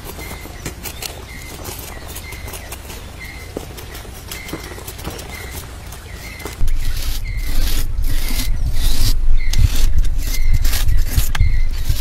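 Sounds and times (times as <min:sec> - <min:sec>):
hand tool scraping plaster: 0:00.0 - 0:12.0
heavy low rumble: 0:06.6 - 0:12.0.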